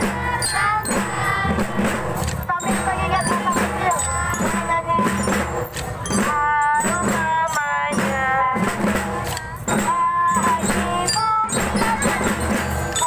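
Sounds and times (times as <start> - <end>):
marching drums beating: 0.0 - 13.0
music with sung melody: 0.0 - 13.0.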